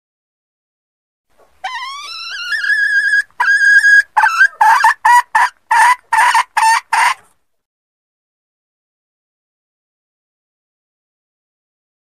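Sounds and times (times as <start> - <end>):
hen clucking: 1.6 - 7.3.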